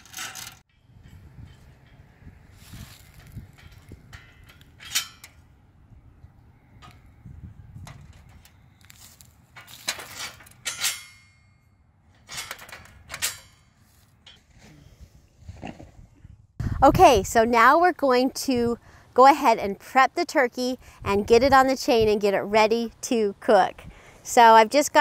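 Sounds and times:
steel bars clanking on columns: 0:00.0 - 0:05.6, 0:09.5 - 0:14.6
sharp metal knocks: 0:09.9 - 0:14.4.

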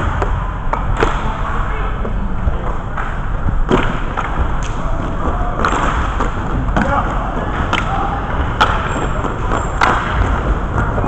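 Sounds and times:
low rumble of rink: 0:00.0 - 0:11.0
hockey sticks knocking and clacking: 0:02.0 - 0:11.0.

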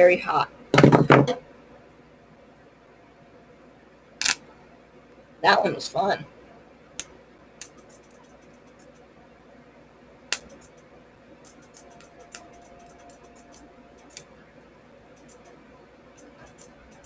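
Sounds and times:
faint steady hum: 0:00.0 - 0:17.0
electrical arcs snapping and crackling: 0:04.2 - 0:04.4.

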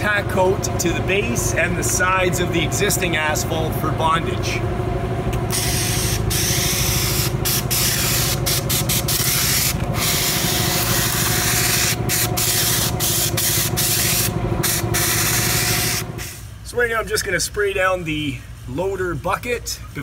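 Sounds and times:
engine humming: 0:00.0 - 0:20.0
spray wand hissing: 0:05.5 - 0:16.0.

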